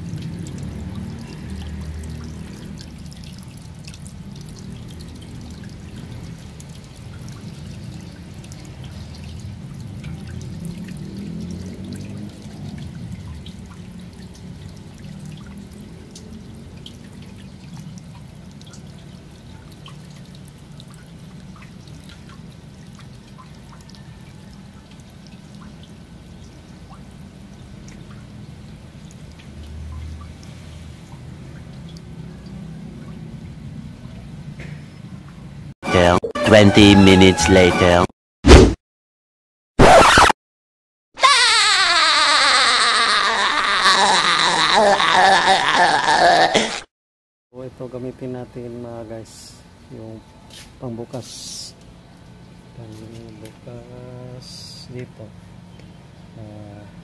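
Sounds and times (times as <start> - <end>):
water splashing on concrete: 0.0 - 24.2
water pouring from drain pipe: 0.0 - 35.4, 41.3 - 46.4.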